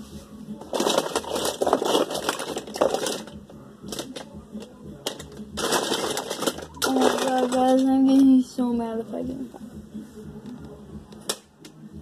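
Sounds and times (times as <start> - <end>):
toy cars clattering together: 0.6 - 8.3.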